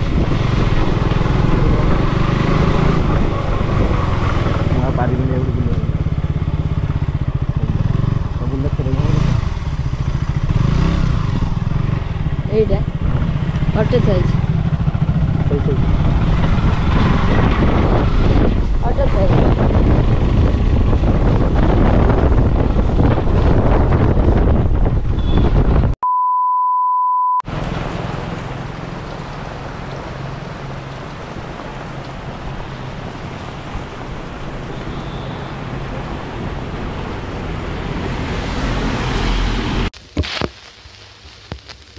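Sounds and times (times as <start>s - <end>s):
heavy rain on road: 0.0s - 5.8s, 27.5s - 41.9s
wind buffeting microphone: 0.0s - 8.2s, 9.0s - 26.0s
traffic passing: 0.0s - 25.9s, 27.5s - 40.0s
motorcycle engine: 0.0s - 26.0s
steady beep tone: 26.0s - 27.4s.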